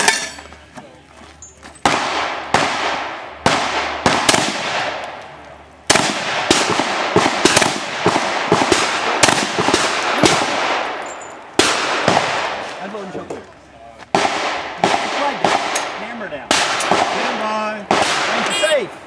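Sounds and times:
pistol shots: 1.8s - 5.2s, 5.9s - 11.0s, 11.6s - 12.7s, 14.1s - 18.6s.

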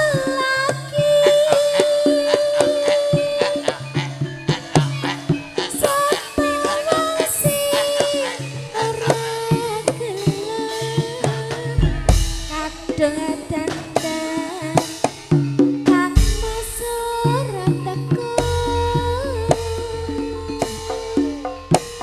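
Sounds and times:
sharp drum strokes: 0.0s - 22.0s
held melody line: 15.9s - 22.0s
repeated low notes: 18.3s - 22.0s
deep bass notes: 18.4s - 22.0s.

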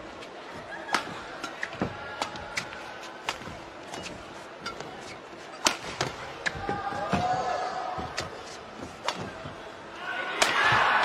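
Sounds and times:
shoes squeaking on court: 0.2s - 7.1s
racket hitting shuttlecock: 0.8s - 4.9s, 5.6s - 7.3s.

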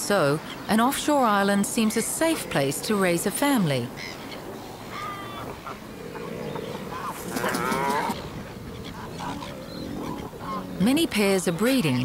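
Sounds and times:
warbling bird call: 4.0s - 10.8s
low moo-like bird calls: 4.0s - 10.9s.

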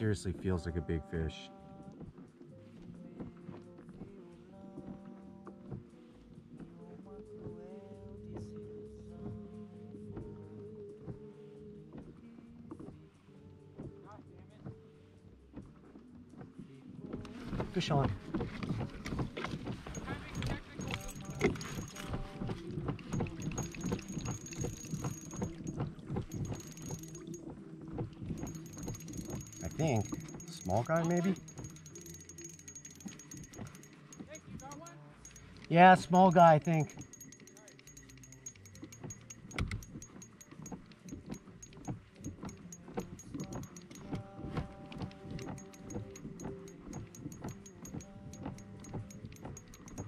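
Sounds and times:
background music: 0.0s - 50.0s
fishing reel clicking: 19.8s - 22.2s, 23.0s - 27.4s, 28.4s - 44.2s, 45.3s - 50.0s.

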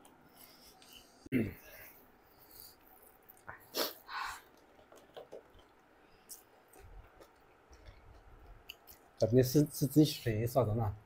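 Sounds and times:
chewing clicks and smacks: 4.5s - 9.2s.

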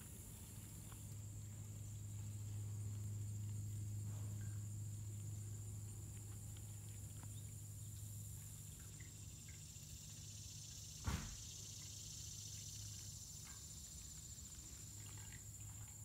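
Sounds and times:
high-pitched insect chorus: 0.0s - 16.0s
low steady hum: 0.0s - 16.0s
sharp knock: 11.0s - 11.4s.

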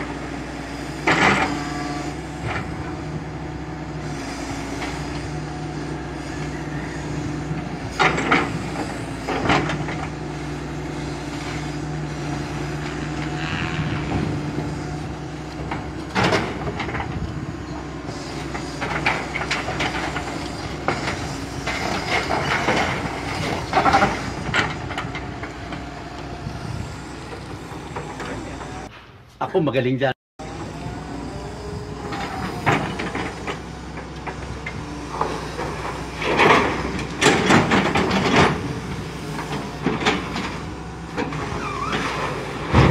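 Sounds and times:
excavator diesel engine running: 0.0s - 28.9s, 30.4s - 42.9s
steel tracks clanking on deck: 7.7s - 10.2s, 30.5s - 42.9s.

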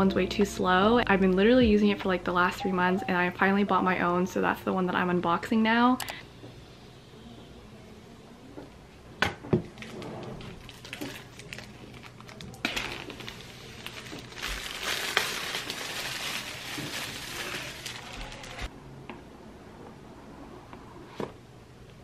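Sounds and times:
plastic wrap crinkling: 9.7s - 18.7s.

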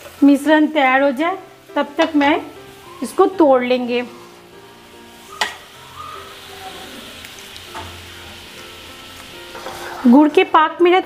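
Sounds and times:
syrup simmering and sizzling: 0.0s - 11.0s.

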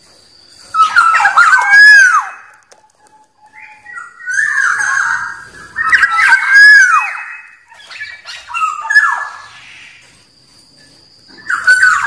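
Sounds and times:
bird whistling call: 0.7s - 10.0s, 11.3s - 12.0s.

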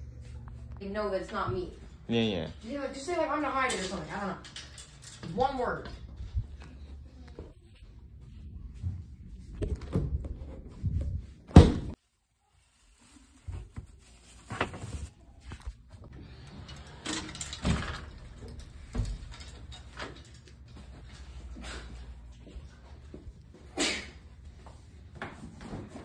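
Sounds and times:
plastic bag rustling: 12.0s - 15.2s.

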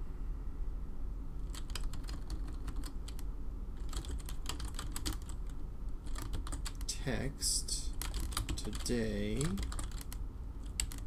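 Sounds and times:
computer keyboard typing: 1.4s - 6.9s, 7.9s - 11.0s.

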